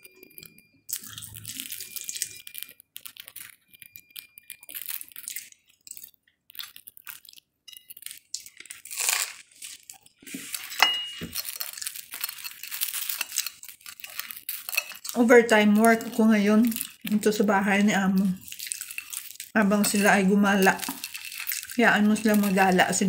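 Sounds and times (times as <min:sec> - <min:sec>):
crunching and chewing bread: 0:00.0 - 0:23.0
plate clinking: 0:10.6 - 0:15.1.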